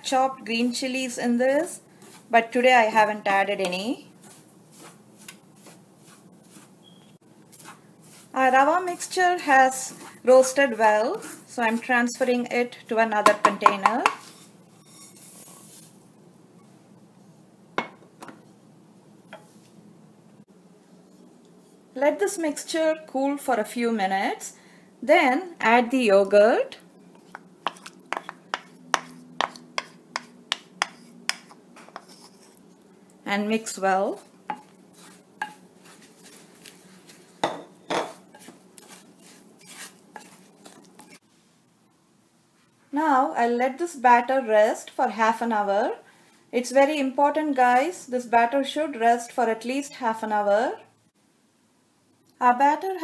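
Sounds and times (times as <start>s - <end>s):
wooden spoon stirring: 0.0s - 16.0s, 27.0s - 41.3s
spoon knocking against dish: 37.4s - 38.5s.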